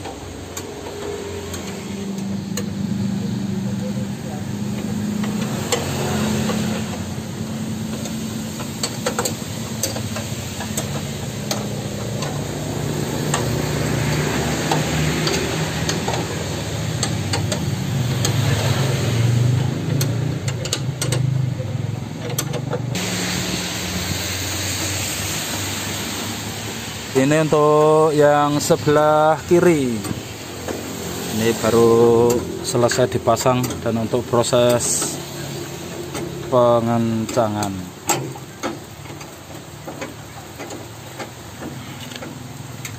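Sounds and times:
low mechanical hum: 0.0 - 42.9
even hiss: 23.0 - 42.9.

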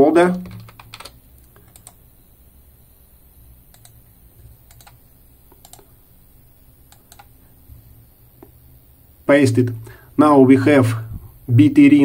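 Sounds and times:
faint low hum: 0.0 - 12.0
computer mouse clicking: 0.3 - 2.0, 3.7 - 5.9, 6.9 - 7.4.

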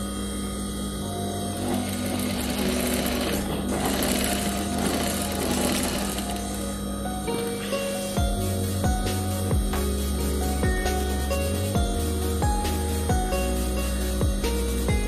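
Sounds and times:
sewing machine stitching: 1.4 - 6.8.

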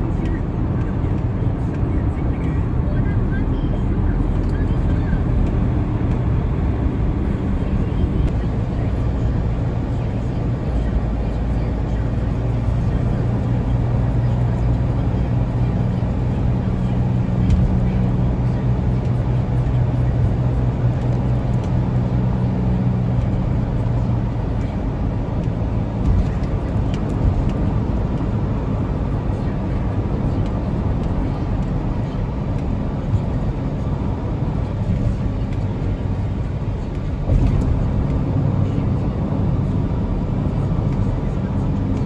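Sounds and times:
low engine hum: 0.0 - 42.0
tyre road rumble: 0.0 - 42.0.

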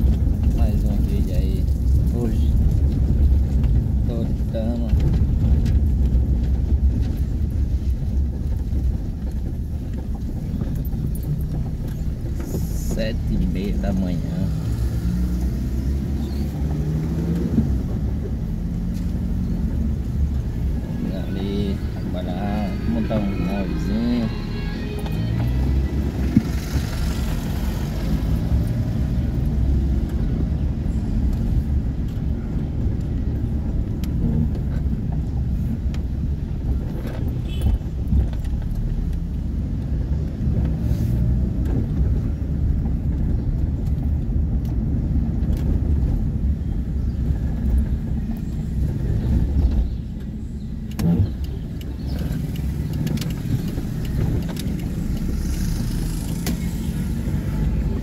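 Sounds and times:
vehicle engine and road rumble: 0.0 - 58.0.

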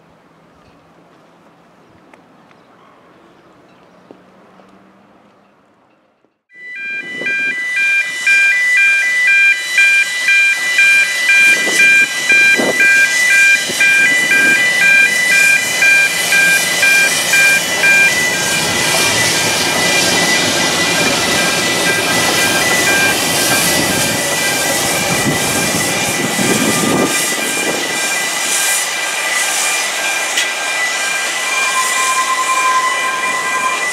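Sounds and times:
crossing alarm two-tone warble: 6.5 - 33.9
steam locomotive hissing: 7.1 - 33.9.

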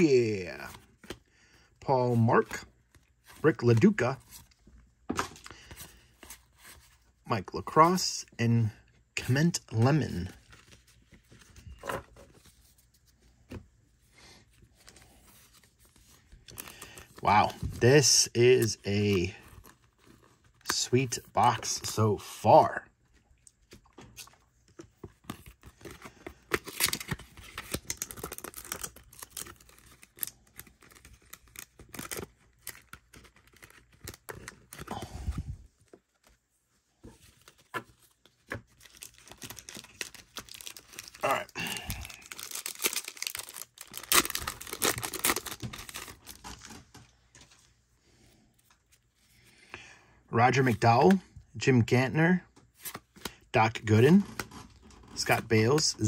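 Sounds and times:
cards rustling and clicking: 23.0 - 35.1, 37.0 - 47.8, 52.6 - 53.4
wrapper tearing and crinkling: 26.5 - 34.8, 38.8 - 46.7.

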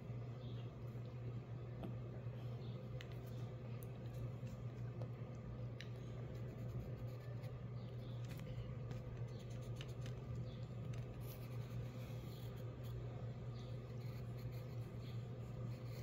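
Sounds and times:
pencil scratching on paper: 11.0 - 13.0, 13.8 - 16.0.

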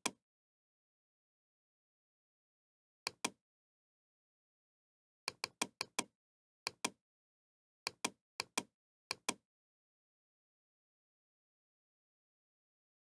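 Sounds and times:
computer mouse clicking: 5.3 - 6.1.

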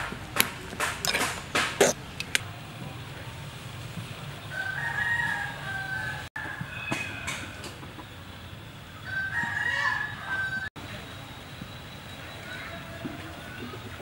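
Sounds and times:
rooster crowing: 4.5 - 7.8, 9.0 - 10.7.

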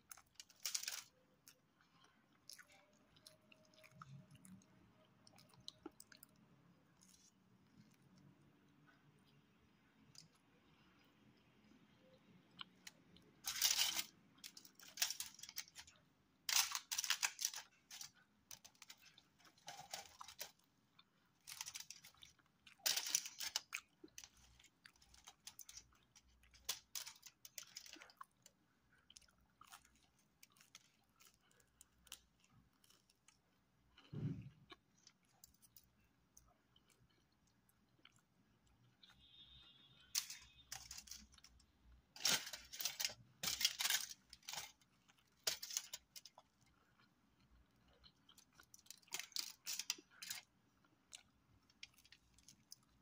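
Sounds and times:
person chewing crisp crust: 0.0 - 9.4, 10.0 - 53.0.

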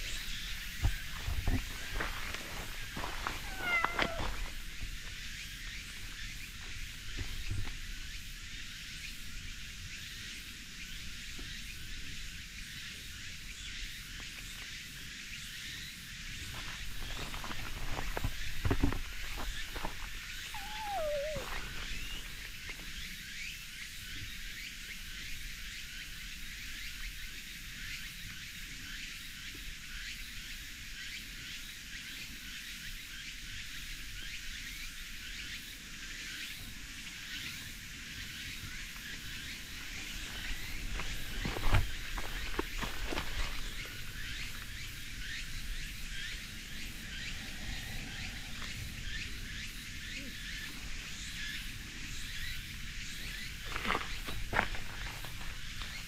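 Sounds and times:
insects chirping: 0.0 - 56.0
birds chirping: 16.5 - 22.5.

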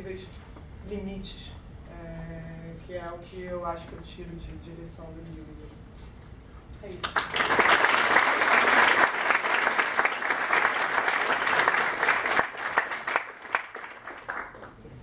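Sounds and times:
audience applauding: 7.0 - 15.0.

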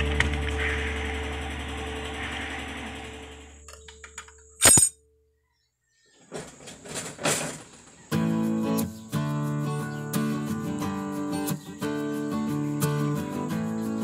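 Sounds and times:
acoustic guitar music: 0.0 - 4.4, 8.1 - 14.0
background hum: 0.0 - 8.1.

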